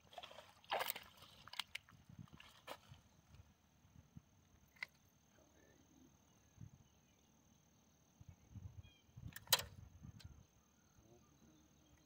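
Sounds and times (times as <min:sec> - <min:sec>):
sharp click: 0:09.3 - 0:09.8.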